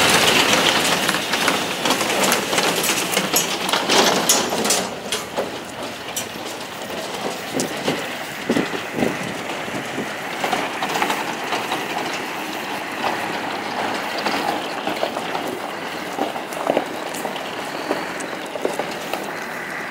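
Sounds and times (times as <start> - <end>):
trailer crates rattling and clanking: 0.0 - 19.9.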